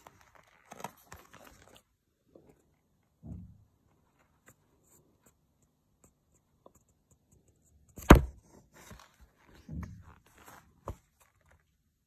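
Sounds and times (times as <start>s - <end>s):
paper rustling: 0.0s - 2.0s
book knocking: 8.0s - 8.4s.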